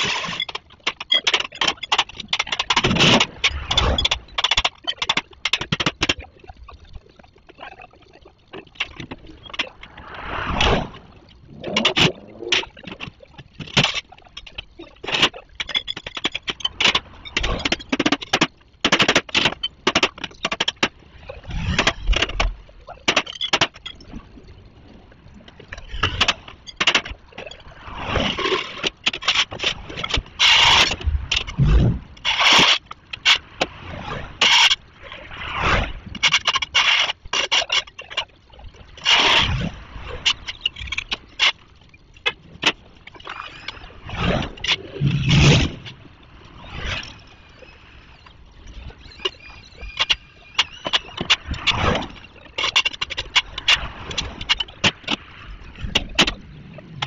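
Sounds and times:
sharp clicks and knocks: 0.0s - 6.3s, 11.6s - 24.1s, 25.5s - 33.8s.

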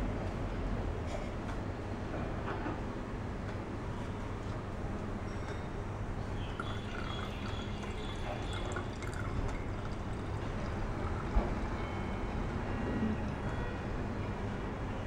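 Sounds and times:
liquid pouring through funnel: 6.4s - 11.8s.

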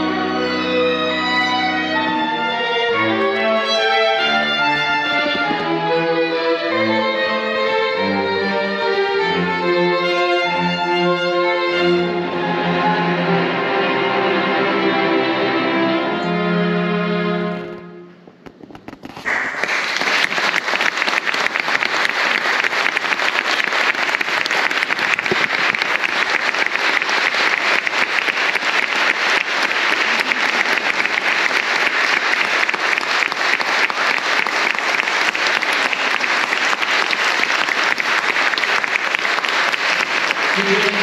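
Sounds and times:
string quartet playing: 0.0s - 18.2s, 40.5s - 41.0s
audience applause: 19.0s - 41.0s.

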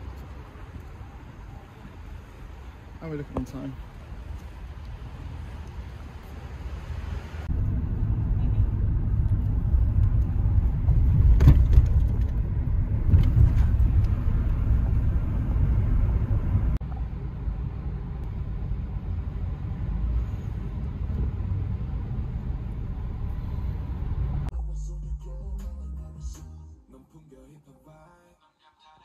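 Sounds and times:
car engine and tyre rumble: 0.0s - 25.0s.

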